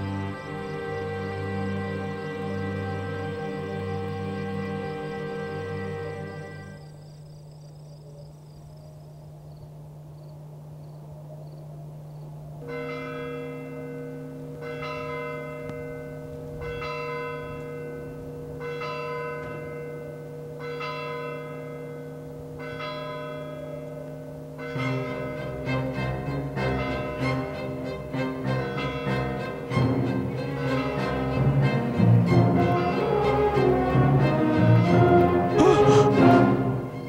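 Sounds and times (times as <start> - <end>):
low steady drone: 0.0 - 16.7, 29.4 - 37.0.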